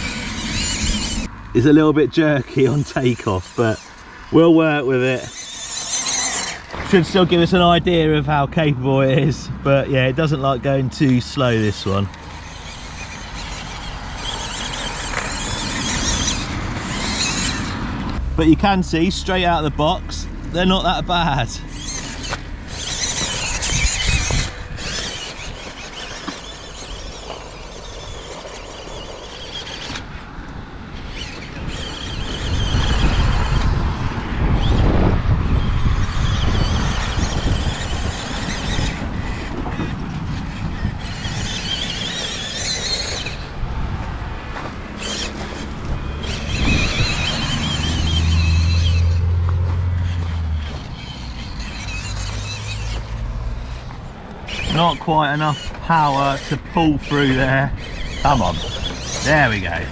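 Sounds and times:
small electric motor whining: 0.0s - 9.4s, 10.0s - 59.9s
tyres crunching gravel: 0.0s - 34.1s, 35.5s - 59.9s.

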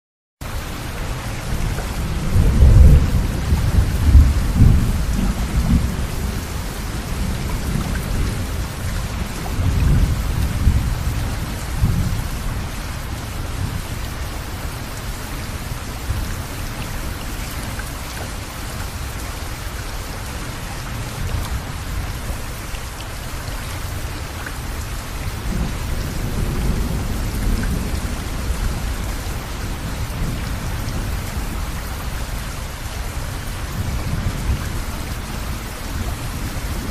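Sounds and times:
steady rain: 0.4s - 36.9s
rolling thunder: 1.5s - 13.9s, 25.2s - 31.8s.

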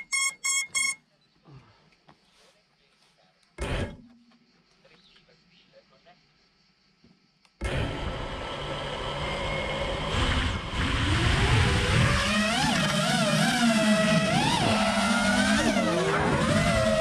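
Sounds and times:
drone motors whining: 7.6s - 17.0s.

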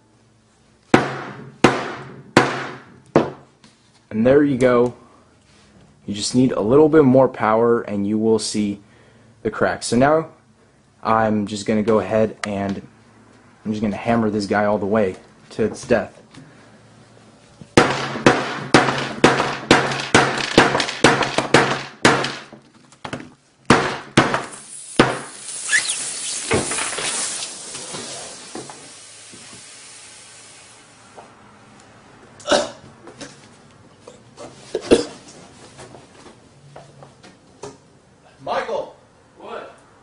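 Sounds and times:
sledgehammer smashing phone: 17.8s - 22.5s
battery hissing: 24.5s - 31.0s.

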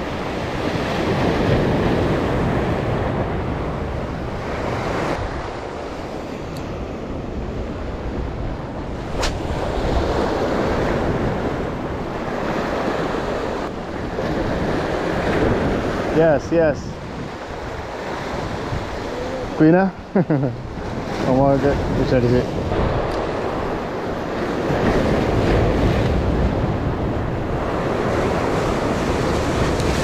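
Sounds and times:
wind buffeting microphone: 0.0s - 30.0s
sharp click: 9.2s - 9.4s.

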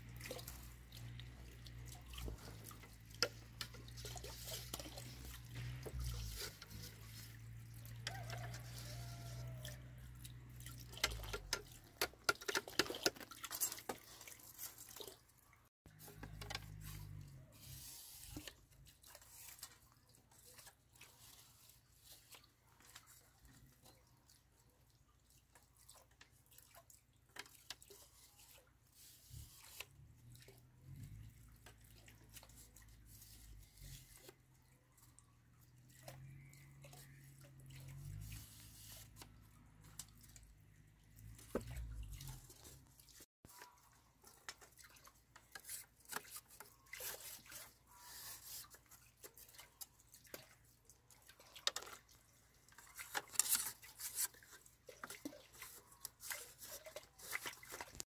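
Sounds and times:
bamboo strips clicking and rustling: 0.3s - 15.2s, 15.9s - 19.8s, 51.4s - 58.0s.

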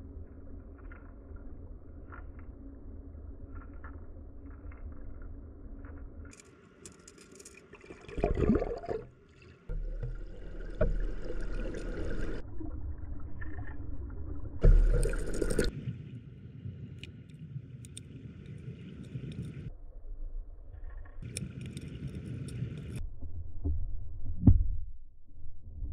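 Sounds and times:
stream water rushing underwater: 7.7s - 19.7s.

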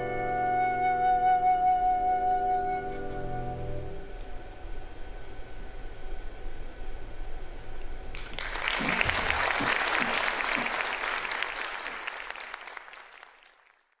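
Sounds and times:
flute and piano note: 0.0s - 4.5s
audience applause: 8.1s - 14.0s.

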